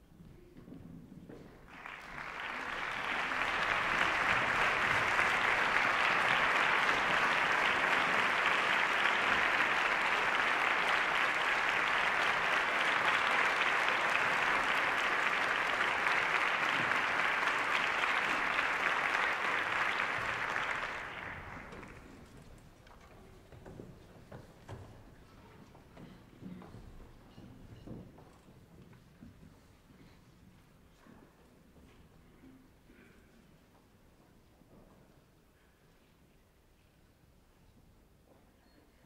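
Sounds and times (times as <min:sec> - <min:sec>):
audience applauding: 0:01.7 - 0:22.5.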